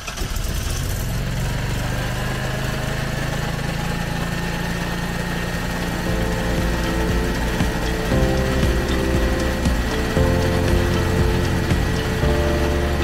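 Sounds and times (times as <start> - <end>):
generator engine running: 0.4 - 13.0.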